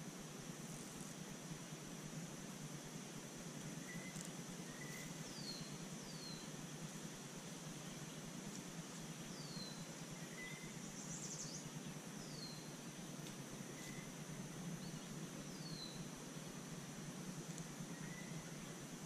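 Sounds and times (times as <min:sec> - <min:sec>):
high insect drone: 0:00.0 - 0:19.0
low background hum: 0:00.0 - 0:19.0
songbird whistling: 0:03.8 - 0:06.5, 0:09.3 - 0:12.7, 0:14.8 - 0:16.1, 0:17.9 - 0:18.6.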